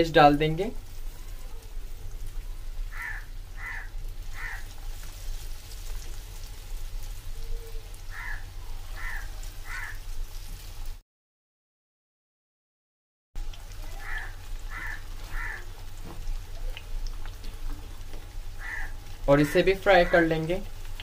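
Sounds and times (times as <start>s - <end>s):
deep-frying sizzle: 0.0s - 11.0s, 13.4s - 21.0s
crow cawing: 2.9s - 4.8s, 8.1s - 10.1s, 13.9s - 15.7s, 18.6s - 20.4s.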